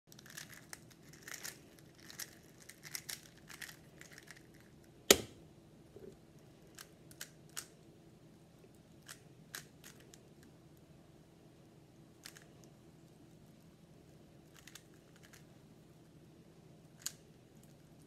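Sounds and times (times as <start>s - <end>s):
sharp plastic clack: 5.1s - 5.4s.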